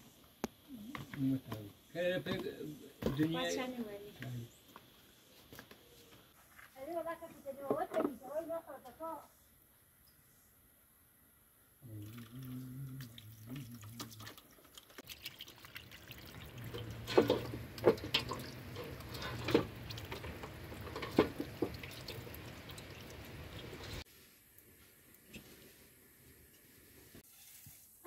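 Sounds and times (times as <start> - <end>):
water running from tap: 14.9 - 24.0.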